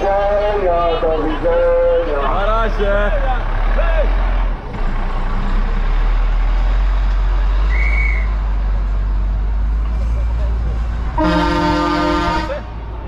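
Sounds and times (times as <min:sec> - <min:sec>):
truck engine rumbling: 0:00.0 - 0:13.0
short high whistle tone: 0:07.7 - 0:08.4.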